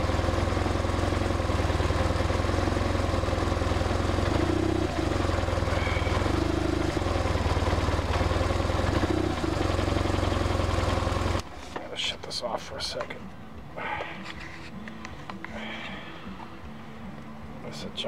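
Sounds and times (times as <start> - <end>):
motorcycle engine idling: 0.0 - 11.5.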